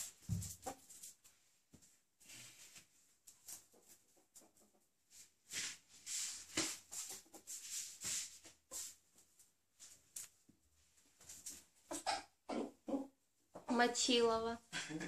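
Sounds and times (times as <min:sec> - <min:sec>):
ferret scuffling on tiled floor: 0:00.0 - 0:04.0, 0:05.2 - 0:11.8.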